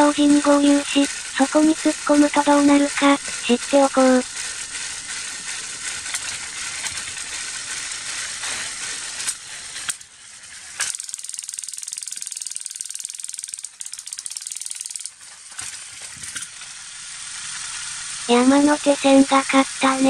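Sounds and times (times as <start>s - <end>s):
steady hiss: 0.0s - 20.0s
toy train gear rattle: 0.0s - 20.0s
toy switch clicks: 10.8s - 15.2s.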